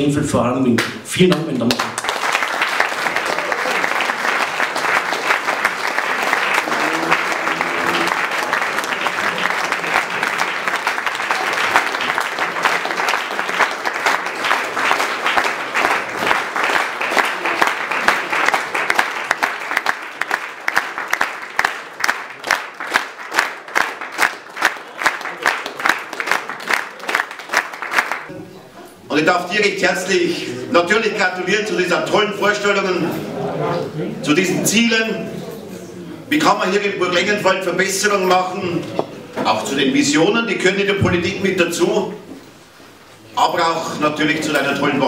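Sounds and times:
rhythmic clapping in unison: 0.8 - 28.3
crowd applauding: 1.3 - 28.3.

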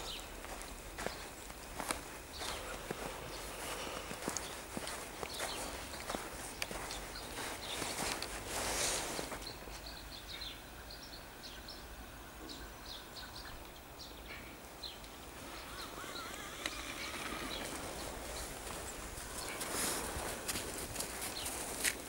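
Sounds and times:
footsteps crunching in snow: 0.0 - 9.6, 16.8 - 22.0
small birds chirping: 0.0 - 22.0.

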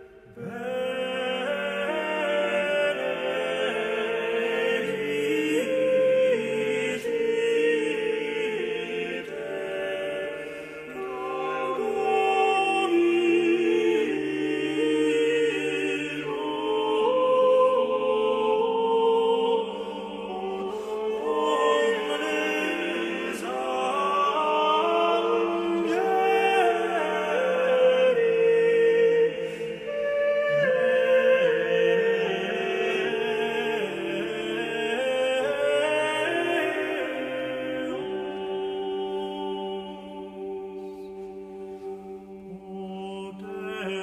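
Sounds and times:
slow choral chant: 0.0 - 44.0.

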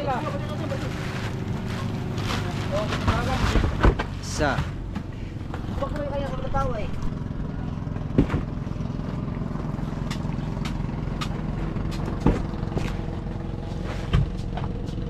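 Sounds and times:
boat engine running: 0.0 - 15.0
sharp knocks: 8.0 - 8.6.

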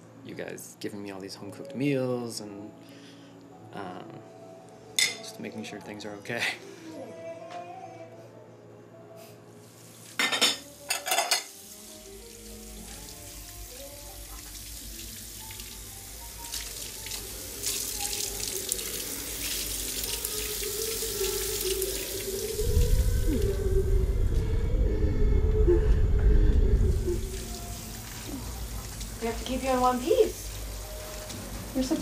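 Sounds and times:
film score with held tones: 17.2 - 32.0
deep low sound: 22.3 - 29.2.

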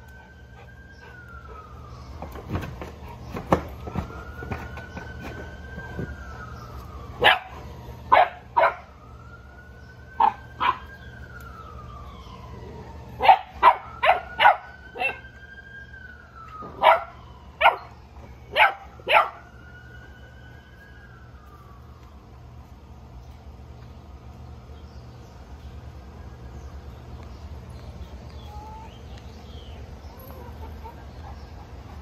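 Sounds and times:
faint siren wailing: 0.0 - 32.0
dog barking: 7.2 - 7.5, 8.1 - 8.8, 13.2 - 15.2, 16.8 - 17.9, 18.5 - 19.4.

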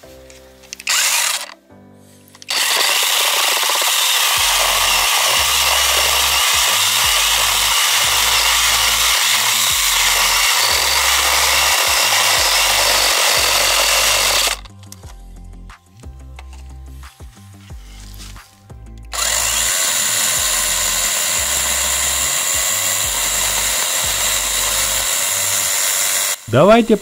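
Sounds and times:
chainsaw cutting wood: 0.8 - 1.6, 2.4 - 14.8, 19.0 - 26.5.

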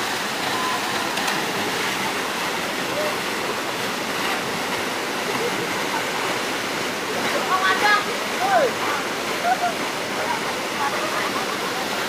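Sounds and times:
waterfall pouring into pool: 0.0 - 12.0.

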